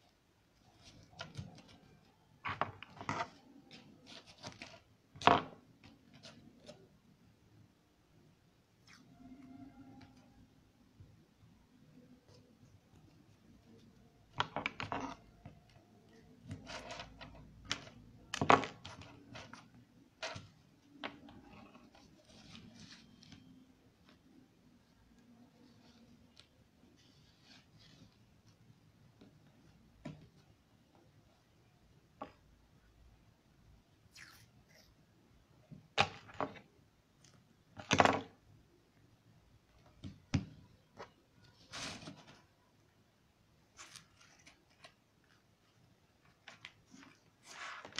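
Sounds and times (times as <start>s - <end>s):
handling noise on tabletop: 12.0s - 31.2s, 39.7s - 42.8s, 43.7s - 47.9s.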